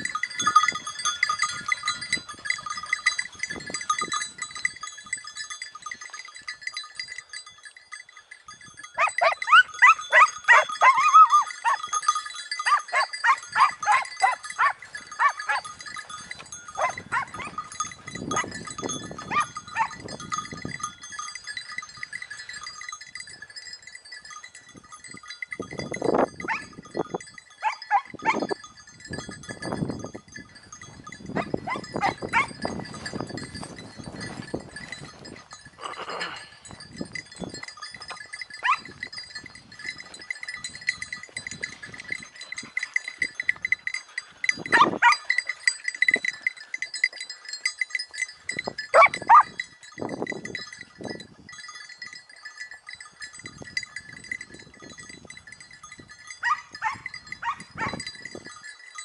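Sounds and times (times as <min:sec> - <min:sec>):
bell jingling: 0:00.0 - 0:59.0
animal bleating calls: 0:35.8 - 0:36.6.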